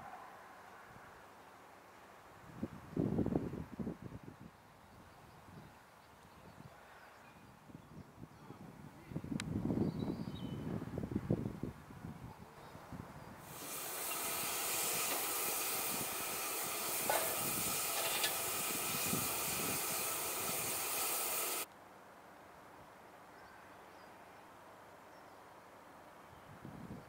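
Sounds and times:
steam locomotive hissing: 13.4 - 21.7.

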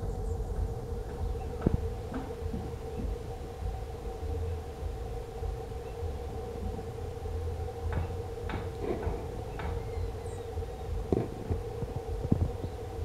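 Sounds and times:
low rumble: 0.0 - 13.0
steady hum: 0.0 - 13.0
dull thumps: 10.6 - 12.6.

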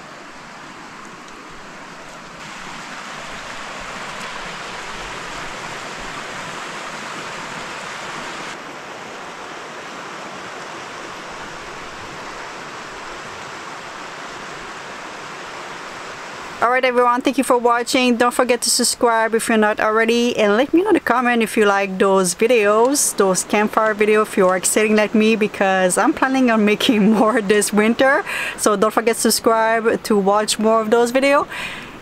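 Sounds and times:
river rushing over stones: 0.0 - 17.5.

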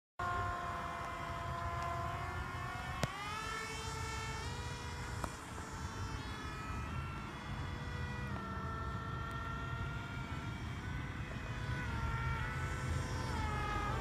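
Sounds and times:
electric motor and propeller whining: 0.2 - 14.0.

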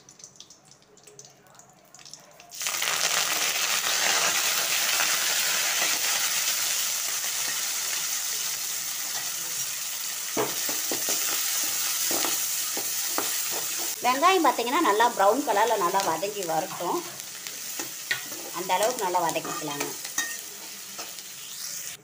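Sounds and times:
food sizzling in hot oil: 2.5 - 22.0
metal spatula scraping and stirring: 19.4 - 21.6.

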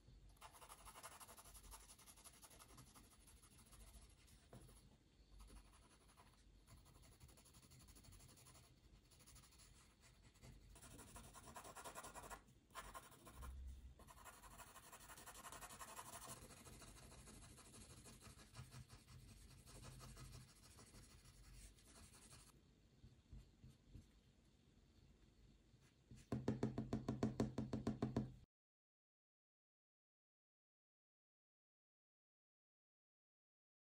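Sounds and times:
pencil scratching on paper: 0.4 - 4.8, 5.4 - 22.5.

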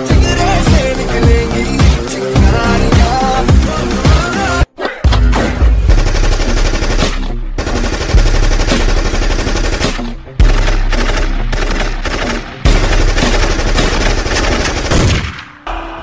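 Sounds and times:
machine-gun sound effect: 5.9 - 15.4.

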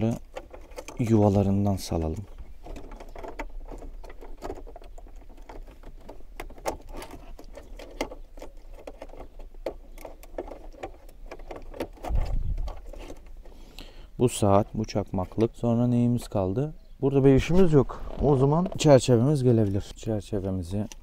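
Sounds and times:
plastic switches clicking and rattling: 0.0 - 13.6, 20.6 - 21.0.

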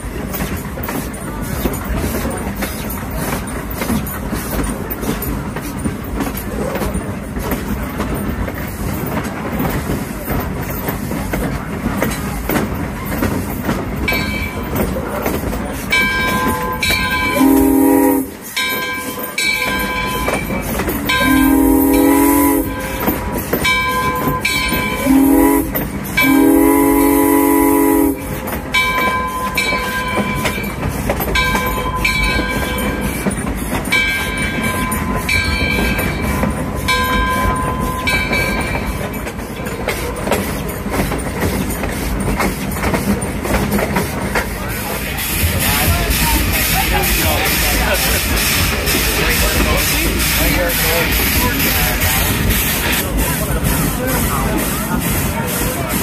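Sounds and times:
train wheels rumbling and clattering: 0.0 - 56.0
steam whistle blasts: 17.2 - 18.5, 21.2 - 23.1, 25.0 - 28.3.

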